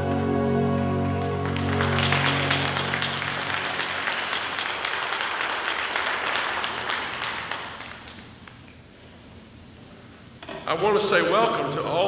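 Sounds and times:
congregation applauding: 0.0 - 8.7.

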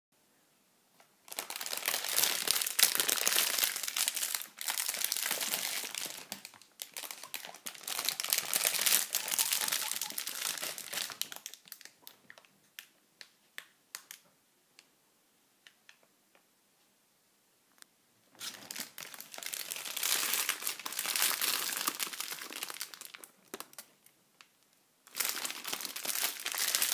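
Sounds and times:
plastic rustling and crinkling: 1.0 - 13.3, 18.4 - 24.1, 25.1 - 26.9.

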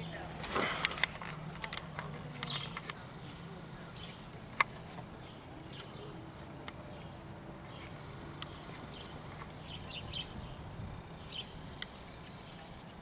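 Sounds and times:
small birds chirping: 0.0 - 13.0
steady low hum: 0.0 - 13.0.

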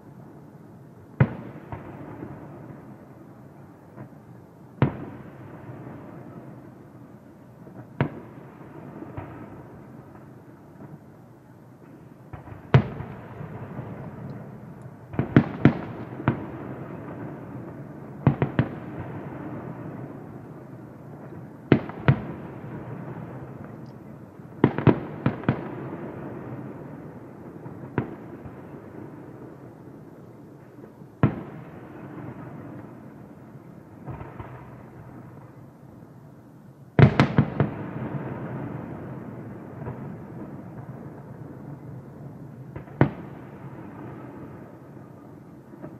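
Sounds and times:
firework shells bursting with booms: 12.3 - 20.3.

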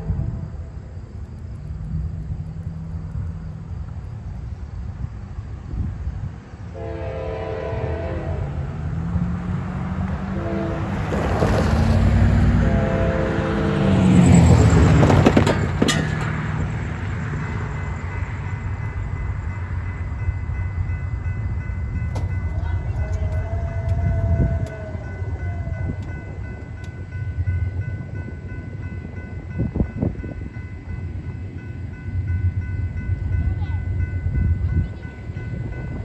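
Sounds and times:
electronic crossing bell ringing: 17.2 - 36.0.

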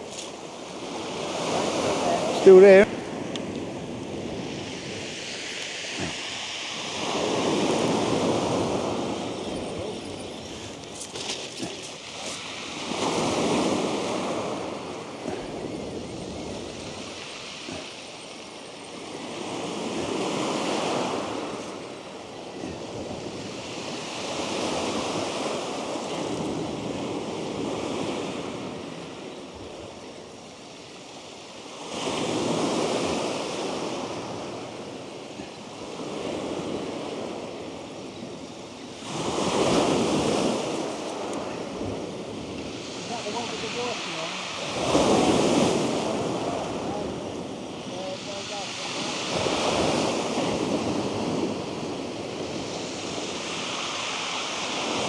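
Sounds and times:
waves breaking on shingle: 10.4 - 18.2.

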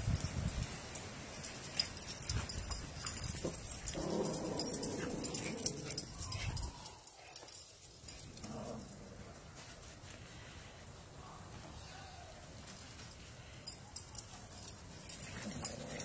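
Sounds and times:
dog whining: 4.3 - 7.5.

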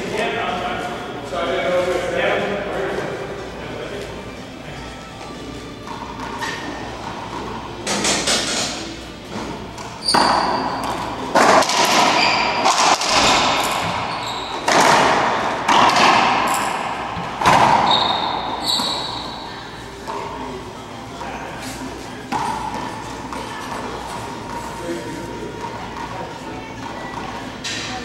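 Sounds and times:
shoes squeaking on hardwood: 9.2 - 11.2, 13.2 - 14.8, 17.2 - 20.3
racquetball ball hits ringing: 9.4 - 20.4.

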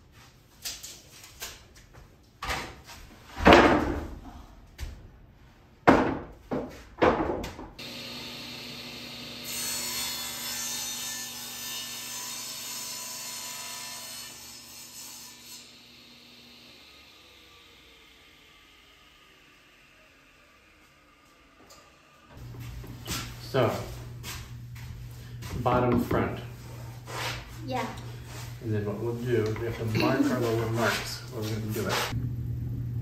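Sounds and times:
saw blade cutting wood: 7.8 - 22.3, 29.8 - 32.2
table saw running: 7.8 - 22.6.

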